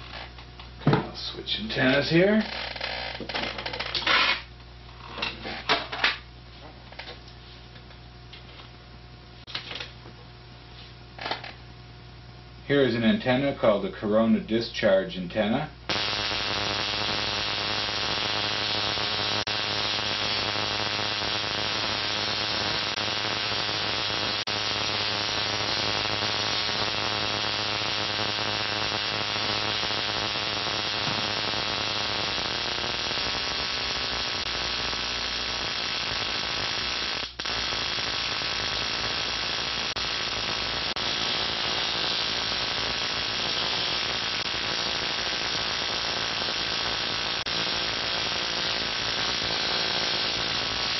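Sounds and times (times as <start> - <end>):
spark gap buzzing hiss: 0.0 - 0.4, 1.6 - 4.5, 15.9 - 50.9
mains hum: 0.0 - 50.9.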